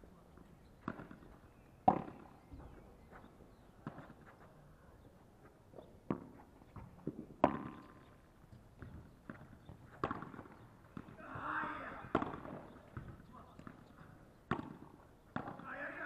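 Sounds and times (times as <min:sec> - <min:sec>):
rackets hitting ball: 0:01.8 - 0:02.3, 0:06.1 - 0:08.0, 0:08.8 - 0:16.0
ball bouncing on court: 0:01.8 - 0:02.7, 0:06.1 - 0:16.0
footsteps on artificial turf: 0:02.5 - 0:07.2.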